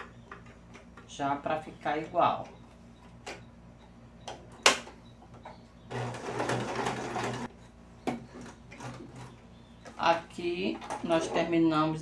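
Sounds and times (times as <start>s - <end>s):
sewing machine stitching: 5.9s - 7.5s.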